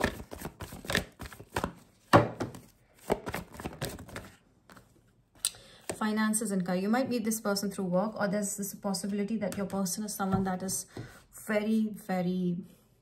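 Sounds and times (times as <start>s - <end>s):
cards being shuffled: 0.0s - 5.0s.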